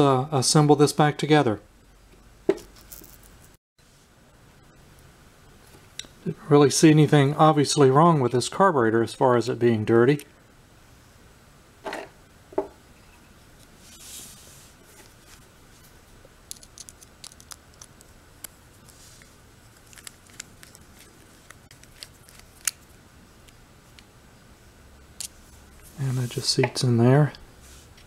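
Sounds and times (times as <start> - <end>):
soft rustle: 13.7 - 16.2, 18.7 - 22.5, 25.3 - 26.6, 27.6 - 28.0.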